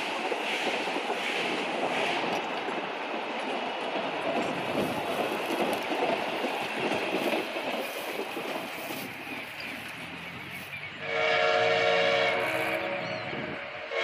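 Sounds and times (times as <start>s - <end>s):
train wheels running on rails: 0.0s - 14.0s.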